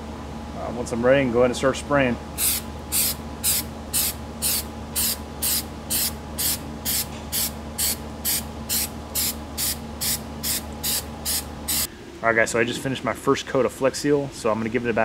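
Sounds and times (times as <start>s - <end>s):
aerosol can spraying hiss: 2.4s - 11.9s.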